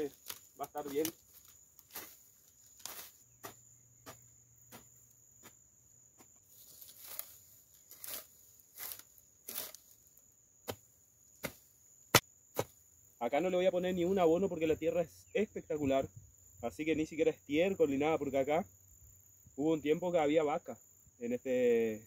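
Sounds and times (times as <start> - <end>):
knocks and scuffs in soil: 0.0 - 12.8
high-pitched insect trill: 0.0 - 22.0.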